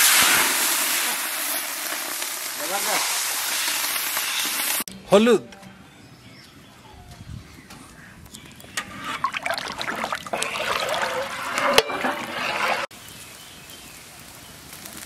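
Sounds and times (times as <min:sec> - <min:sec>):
ladle stirring water sloshing: 0:08.8 - 0:12.9
water boiling and bubbling: 0:09.0 - 0:13.2.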